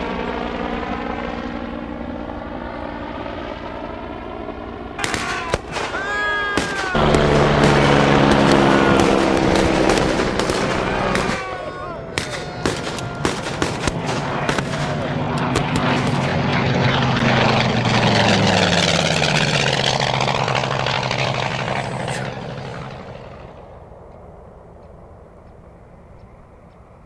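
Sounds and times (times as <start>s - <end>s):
propeller aircraft flying over: 0.0s - 27.0s
gunshots cracking: 5.0s - 16.6s.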